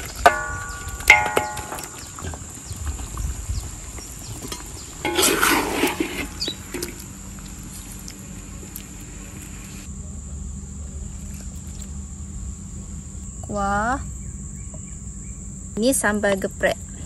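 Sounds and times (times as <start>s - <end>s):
steel tray clanging against wok: 0.0s - 2.2s, 4.5s - 7.0s
chicken sizzling: 4.5s - 9.9s
scraping in a wok: 4.5s - 9.9s.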